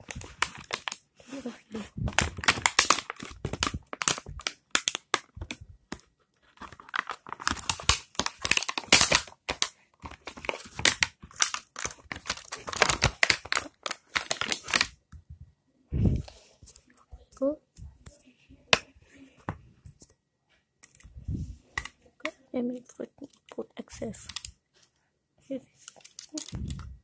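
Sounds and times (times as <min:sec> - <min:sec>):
plastic packaging crinkling and tearing: 0:00.0 - 0:15.0, 0:25.8 - 0:26.9.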